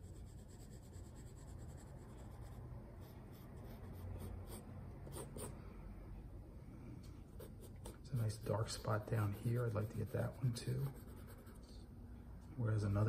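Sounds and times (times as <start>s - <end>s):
pencil scratching on paper: 0.0s - 5.6s, 7.4s - 11.8s.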